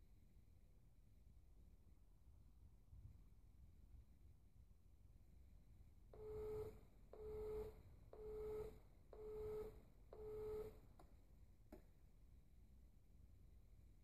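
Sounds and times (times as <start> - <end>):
short electronic beeps: 6.2 - 10.8.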